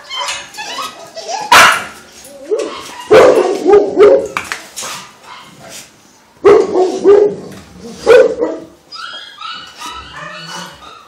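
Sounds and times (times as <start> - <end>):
dogs barking: 1.5 - 2.0, 2.6 - 4.4, 6.4 - 8.8.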